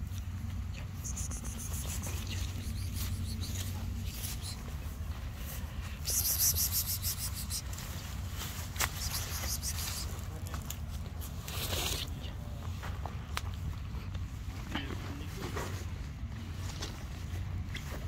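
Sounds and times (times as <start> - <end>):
steady low rumble: 0.0 - 11.4
close rustling: 0.0 - 12.2.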